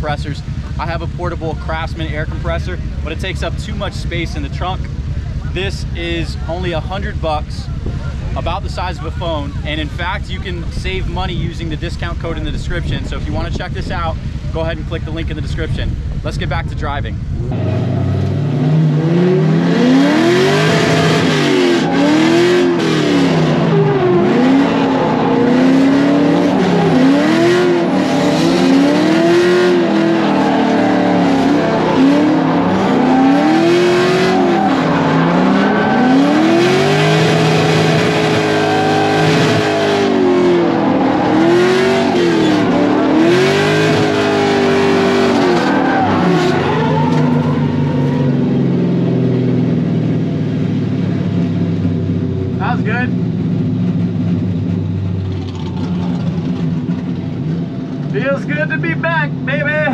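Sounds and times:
car engine revving: 0.0 - 59.9
tyres squealing: 29.7 - 48.4.

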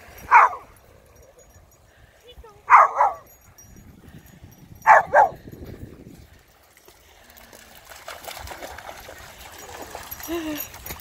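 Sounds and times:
dog splashing through water: 6.4 - 11.0.

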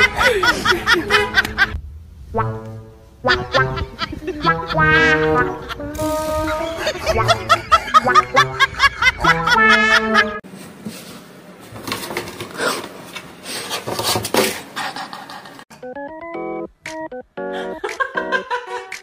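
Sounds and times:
comic laughter: 0.0 - 1.8, 3.2 - 10.4, 17.6 - 19.0
music: 2.4 - 7.5, 15.7 - 19.0.

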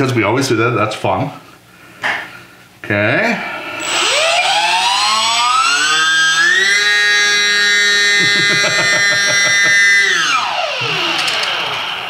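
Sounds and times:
electric motor and propeller whine: 3.6 - 12.0.

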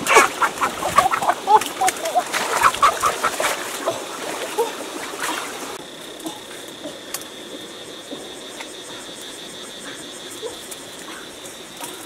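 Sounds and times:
chicken clucking and squawking: 0.0 - 3.9
water splashing: 0.0 - 5.8.

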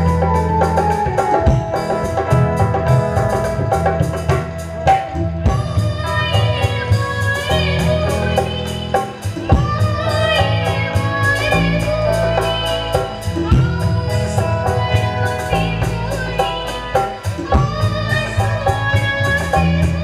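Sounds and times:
wavering melody line: 0.0 - 7.0
electric bass guitar: 0.0 - 20.0
keyboard: 0.0 - 20.0
live band music: 0.0 - 20.0
percussion beat: 0.0 - 20.0.

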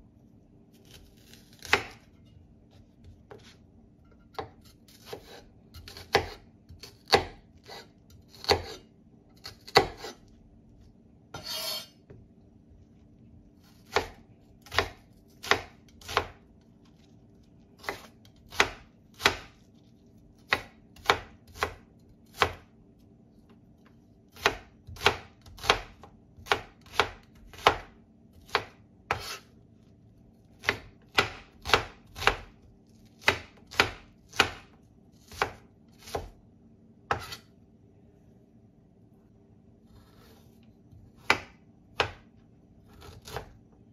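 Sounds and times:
knife chopping on wooden board: 0.8 - 2.2, 4.2 - 8.8, 9.4 - 10.2, 13.8 - 16.4, 17.8 - 19.6, 20.5 - 22.6, 24.3 - 29.4, 30.6 - 32.6, 33.2 - 36.4, 37.1 - 37.4, 41.0 - 42.2, 42.9 - 43.6.

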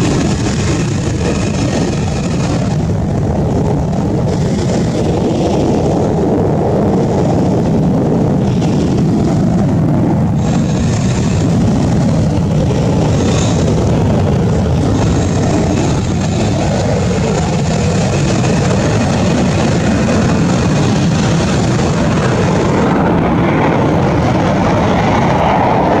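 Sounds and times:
jet engine roaring: 0.0 - 26.0.

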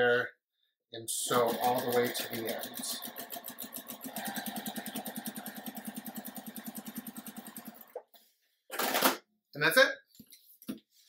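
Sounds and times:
sewing machine stitching: 1.3 - 8.0, 8.7 - 9.2.

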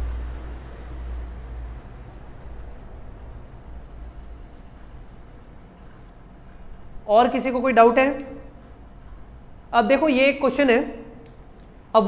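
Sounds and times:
low hum: 0.0 - 7.0.

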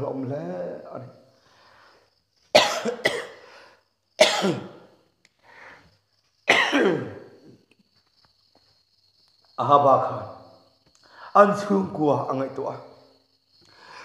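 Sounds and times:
man coughing: 2.6 - 3.4, 4.2 - 4.8, 6.5 - 7.2.

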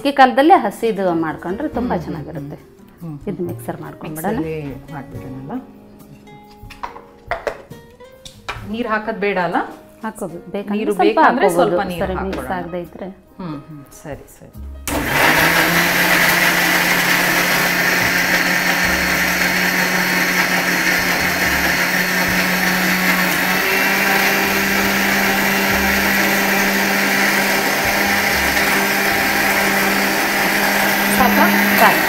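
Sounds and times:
mixer grinder running: 14.8 - 32.0.

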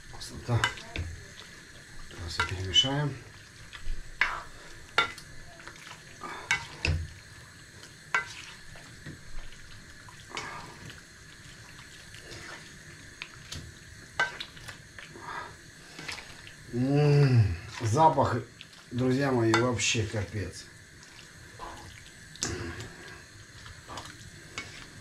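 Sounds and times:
utensil scraping a pot: 23.8 - 25.0.

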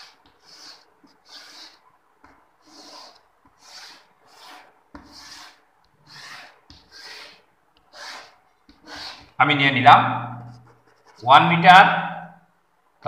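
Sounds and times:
chalk scraping on blackboard: 0.0 - 9.4, 10.5 - 11.3
chalk tapping on board: 0.0 - 9.4.

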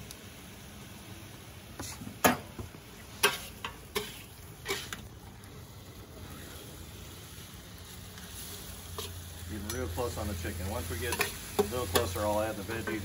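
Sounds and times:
chicken sizzling: 0.0 - 13.0
spatula scraping and knocking wok: 1.8 - 5.1, 8.4 - 13.0.

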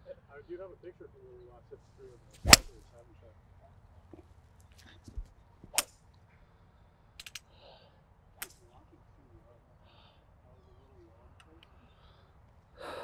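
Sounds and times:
golf clubs striking balls: 2.4 - 2.8
faint clicks: 7.2 - 7.5.

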